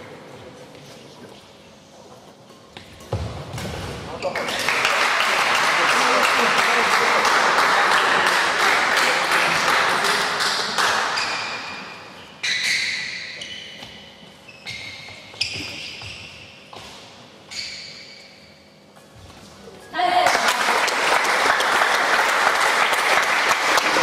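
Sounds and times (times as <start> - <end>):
applause: 4.4 - 11.1, 20.1 - 24.0.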